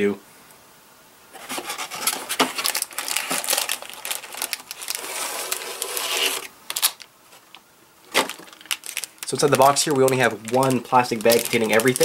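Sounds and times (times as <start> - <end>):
plastic bag crinkling: 1.4 - 12.0
plastic pieces clicking: 2.6 - 7.6, 8.2 - 12.0.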